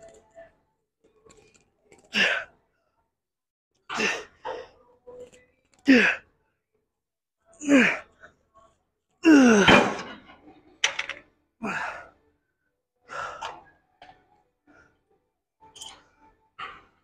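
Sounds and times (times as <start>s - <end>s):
man grunting and exhaling: 7.6s - 8.1s, 9.2s - 10.0s.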